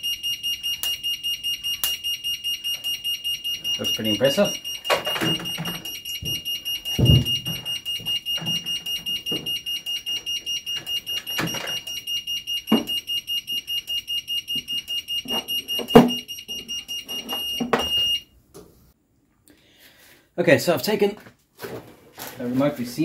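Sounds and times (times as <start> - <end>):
rapid high-pitched alarm beeping: 0.0 - 18.2.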